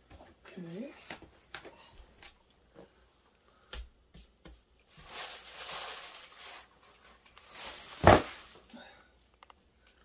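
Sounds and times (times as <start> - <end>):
bubble wrap rustling and crinkling: 4.7 - 8.8.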